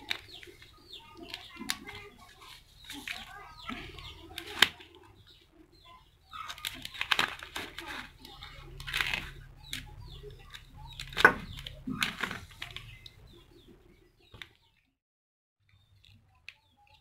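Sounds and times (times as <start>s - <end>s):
newspaper rustling: 0.0s - 5.0s, 6.4s - 9.8s.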